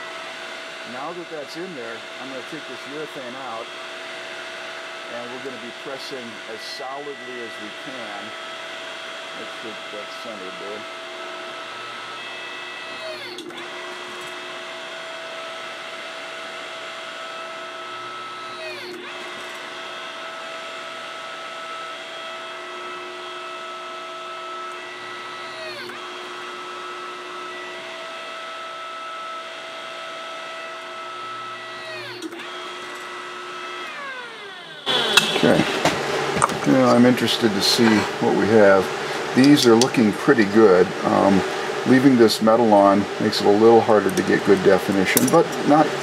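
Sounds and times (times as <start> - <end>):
hydraulic pump motor whine: 0.0 - 46.0.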